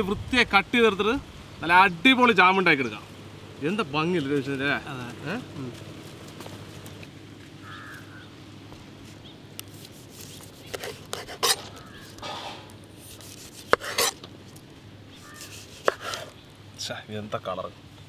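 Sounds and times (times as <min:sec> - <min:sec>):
knife slicing fruit: 0:09.6 - 0:14.3, 0:15.2 - 0:16.4.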